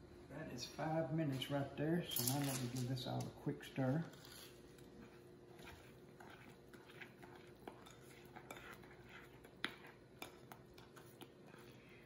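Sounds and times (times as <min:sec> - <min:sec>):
metal spoon scraping glass bowl: 0:04.1 - 0:04.6, 0:05.6 - 0:09.9.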